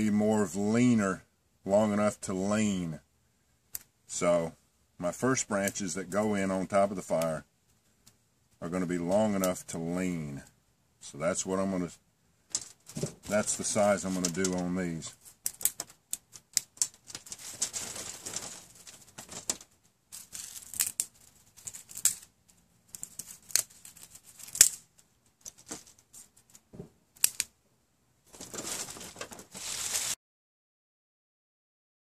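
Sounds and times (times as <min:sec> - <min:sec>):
rustling twigs and dry leaves: 0:12.5 - 0:22.3, 0:28.3 - 0:30.2
twigs snapping: 0:15.4 - 0:22.3, 0:22.9 - 0:24.8, 0:27.2 - 0:27.5.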